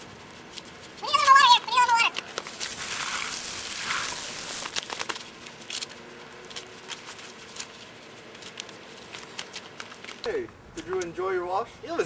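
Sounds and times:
water spraying onto clothes: 0:02.5 - 0:05.2.

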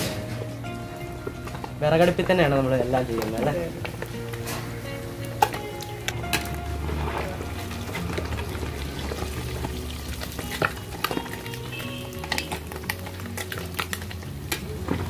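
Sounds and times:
food sizzling in hot oil: 0:03.6 - 0:14.9.

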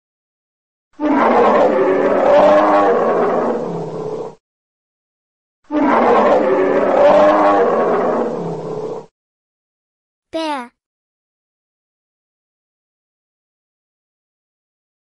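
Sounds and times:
bear roaring: 0:01.0 - 0:04.4, 0:05.7 - 0:09.1.

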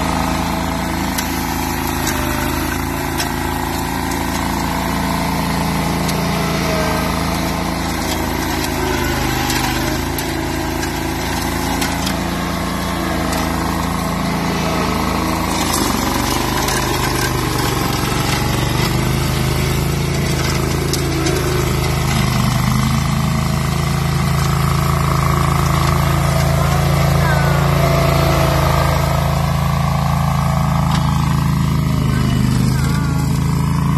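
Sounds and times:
mower mulching shrubs: 0:00.0 - 0:33.9
ride-on mower engine running: 0:00.0 - 0:33.9.

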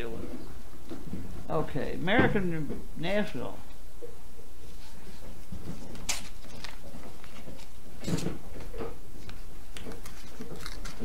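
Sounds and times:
low electrical hum: 0:00.0 - 0:11.0
paper rustling: 0:04.7 - 0:08.4, 0:09.2 - 0:11.0.

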